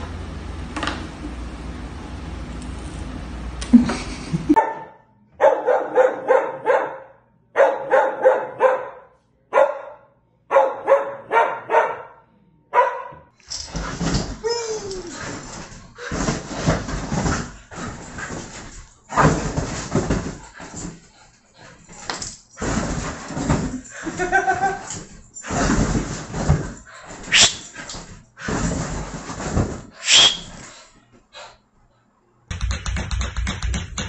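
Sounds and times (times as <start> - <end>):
rustling and knocking: 13.4 - 21.2, 21.8 - 27.4, 28.5 - 30.0, 32.5 - 34.0
small dog yapping: 27.3 - 27.8.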